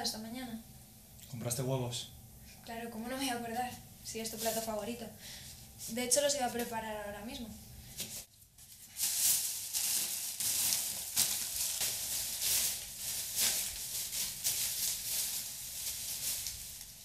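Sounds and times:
plastic bag rustling: 0:04.2 - 0:04.9, 0:08.0 - 0:17.0.

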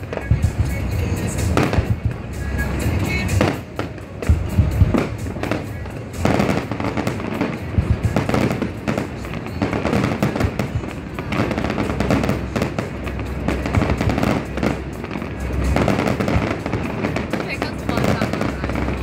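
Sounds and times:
background music: 0:00.0 - 0:19.0
fireworks bangs and crackles: 0:00.0 - 0:19.0.

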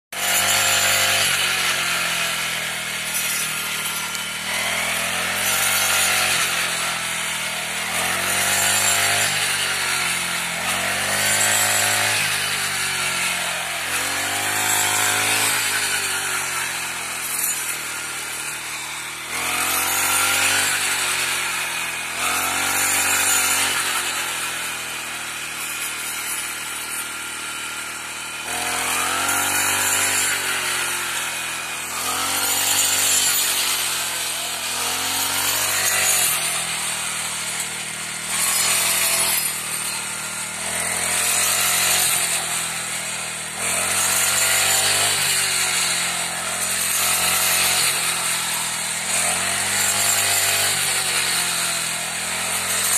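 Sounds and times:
small engine running: 0:00.1 - 0:52.9.

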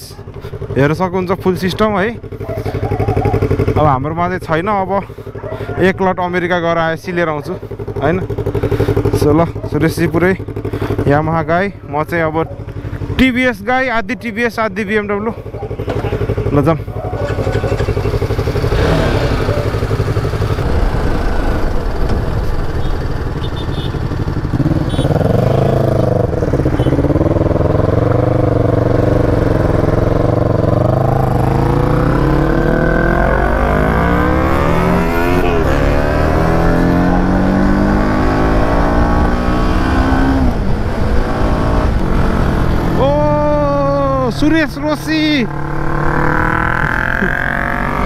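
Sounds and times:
motorcycle engine accelerating: 0:00.3 - 0:13.7, 0:14.9 - 0:48.0
wind rush: 0:20.4 - 0:23.4.

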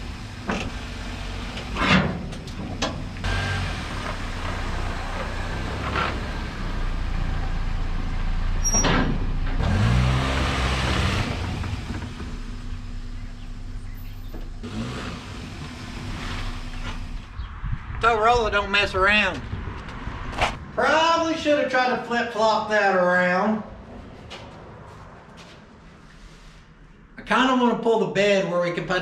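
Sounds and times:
car engine revving: 0:00.0 - 0:08.6, 0:09.4 - 0:17.4.

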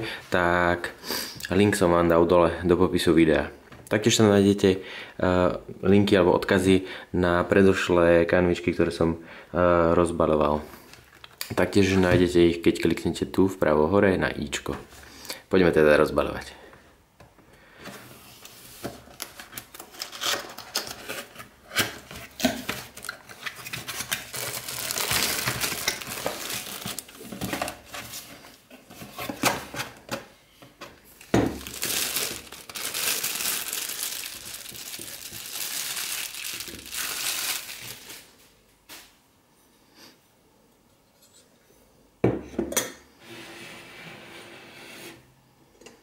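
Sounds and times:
cardboard packaging tapping and scraping: 0:18.8 - 0:33.2
plastic wrap crinkling: 0:19.1 - 0:28.6, 0:31.2 - 0:38.5.

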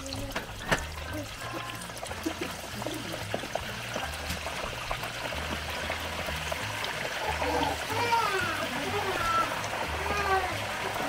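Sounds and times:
water boiling with small pops: 0:00.0 - 0:11.0.

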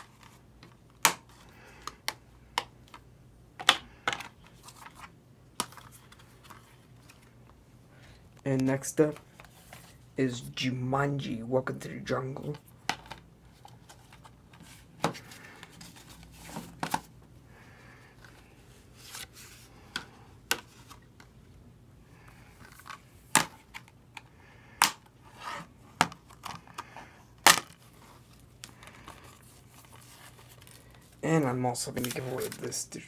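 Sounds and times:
plastic cases clicking and snapping: 0:03.6 - 0:05.9, 0:22.6 - 0:25.1
plastic wrapping rustling: 0:27.6 - 0:31.2.

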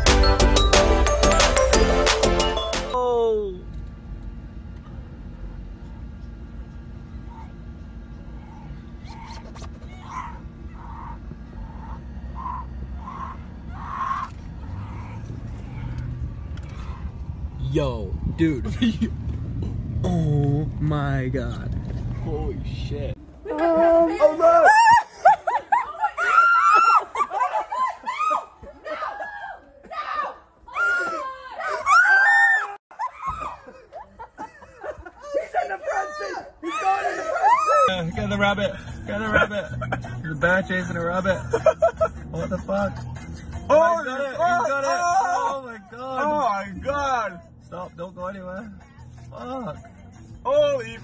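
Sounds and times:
car engine idling: 0:09.9 - 0:23.2
laughter: 0:24.7 - 0:29.5, 0:32.9 - 0:37.6, 0:39.1 - 0:40.3, 0:41.2 - 0:43.1
person screaming: 0:35.9 - 0:37.9.

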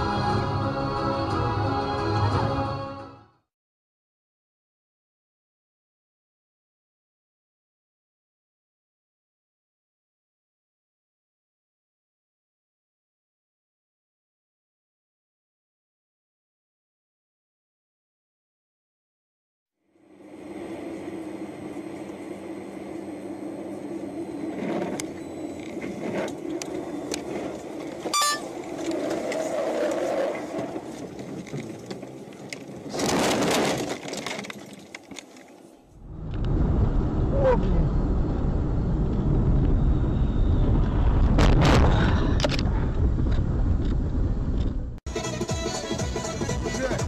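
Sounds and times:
low rumble of wind and road: 0:19.9 - 0:45.0.

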